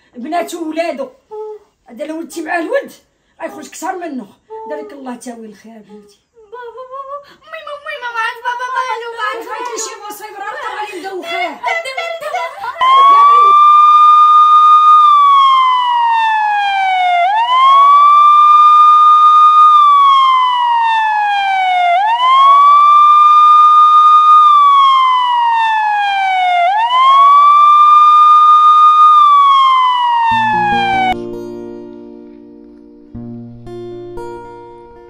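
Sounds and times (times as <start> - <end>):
emergency siren wailing: 12.8 - 31.2.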